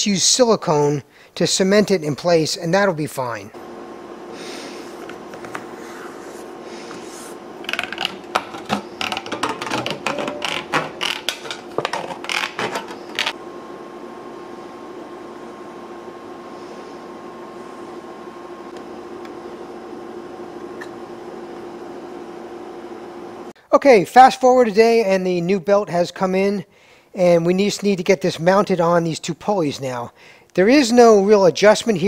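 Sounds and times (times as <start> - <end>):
steady hum: 0.8 - 24.0.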